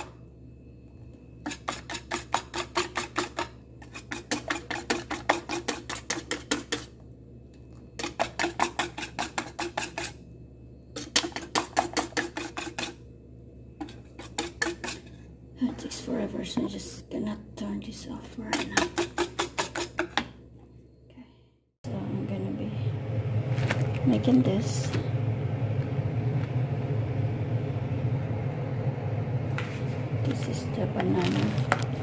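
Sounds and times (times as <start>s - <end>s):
whisk clattering in metal bowl: 1.5s - 6.9s, 8.0s - 10.2s, 11.0s - 13.0s, 13.8s - 15.1s.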